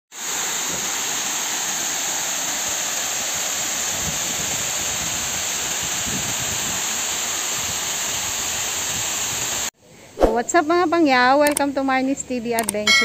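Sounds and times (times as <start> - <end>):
water rushing down a dam: 0.2 - 9.6.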